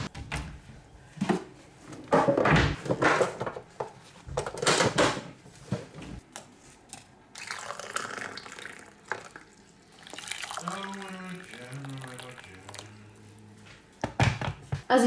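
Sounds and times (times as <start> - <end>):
water pouring into a mug: 7.4 - 12.9.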